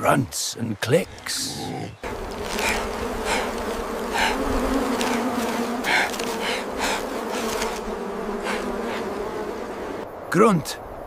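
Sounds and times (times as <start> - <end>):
swarm of flies buzzing: 1.2 - 10.1
single fly buzzing past: 2.0 - 10.0.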